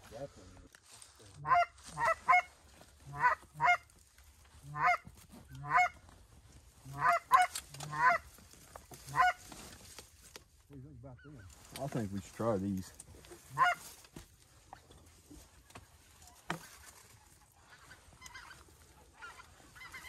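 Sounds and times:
goose honking: 0:01.4 - 0:06.0, 0:06.8 - 0:09.5, 0:13.3 - 0:14.0, 0:16.2 - 0:20.0.

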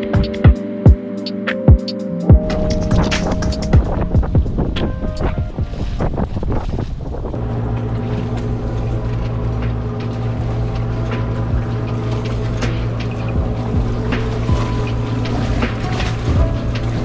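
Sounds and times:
motorboat engine running: 0:02.3 - 0:17.0
wind on microphone: 0:02.3 - 0:17.0.

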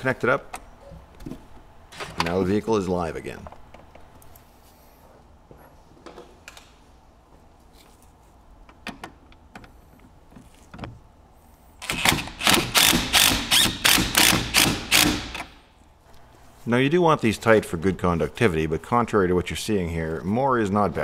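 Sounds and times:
impact driver rattling: 0:11.8 - 0:15.6.

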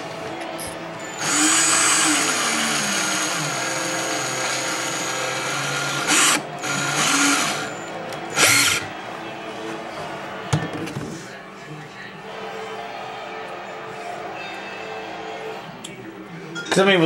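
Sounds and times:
power drill boring into cork: 0:01.2 - 0:08.9.

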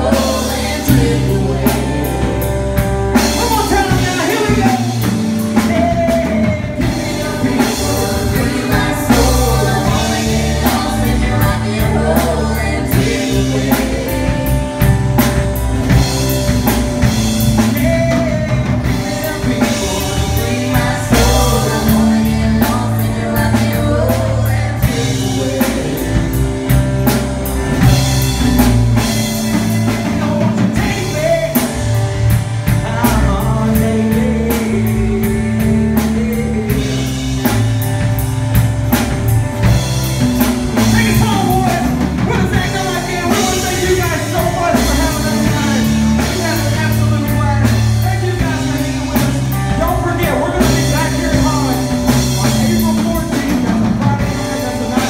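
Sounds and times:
person singing: 0:00.0 - 0:14.7, 0:17.4 - 0:26.7
live rock band playing: 0:00.0 - 0:55.0.

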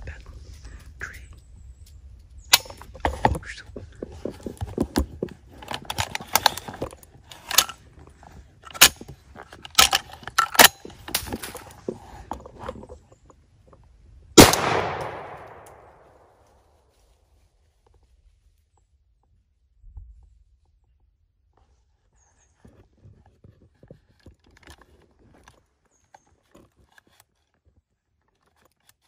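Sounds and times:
irregular clicks and crackles: 0:00.0 - 0:13.9, 0:22.6 - 0:29.0
loud gunshot with echo: 0:14.4 - 0:16.0.

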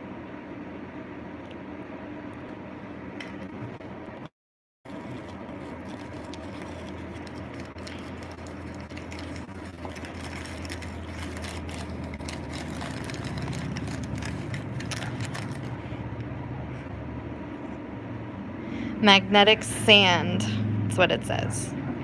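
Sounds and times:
low background hum: 0:00.0 - 0:04.3, 0:04.9 - 0:22.0
bubble wrap and paper crinkling: 0:04.9 - 0:16.0.

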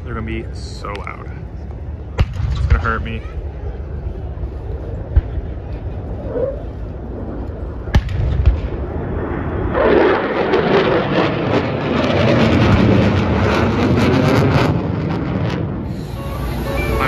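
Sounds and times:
fighter jet roaring past: 0:04.8 - 0:17.0.

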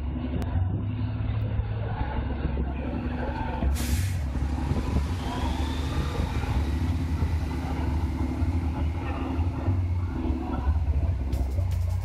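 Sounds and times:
diesel truck engine rumbling: 0:00.0 - 0:12.0
brief hiss: 0:03.8 - 0:04.3.

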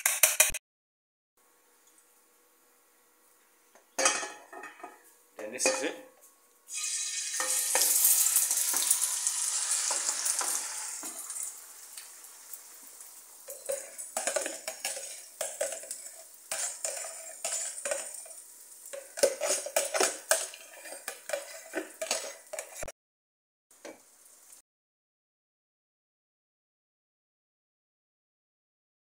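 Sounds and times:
egg sizzling in hot oil: 0:06.6 - 0:22.9, 0:23.8 - 0:24.6
knife scraping a bowl: 0:13.5 - 0:22.9.

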